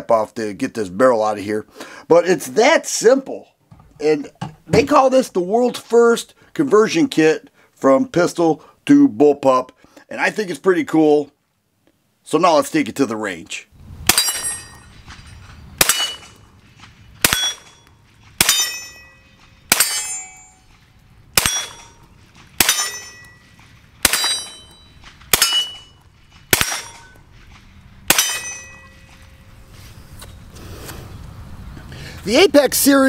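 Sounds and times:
steel target clang: 14.1s - 16.5s, 17.2s - 20.7s, 21.4s - 27.3s, 28.1s - 29.5s
gunshots: 15.8s - 19.0s, 19.7s - 20.2s, 21.4s - 22.0s, 22.6s - 23.2s, 24.0s - 27.1s, 28.1s - 28.7s.

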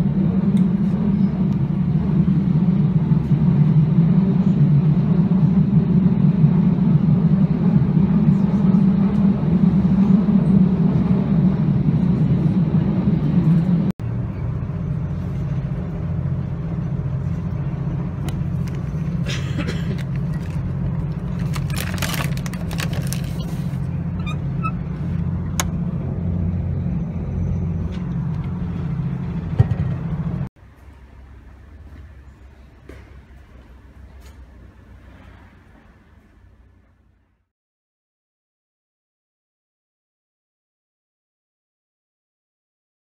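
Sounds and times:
train rumbling: 0.0s - 37.5s
food wrapper rustling: 21.3s - 23.8s.

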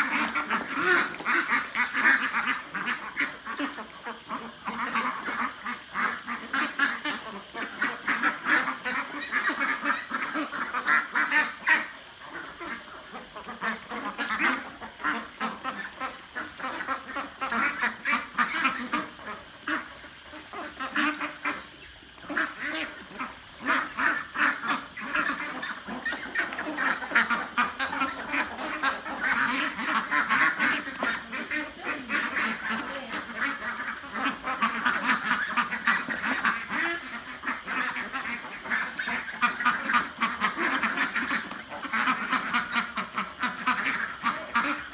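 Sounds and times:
ducks quacking: 0.0s - 44.9s.

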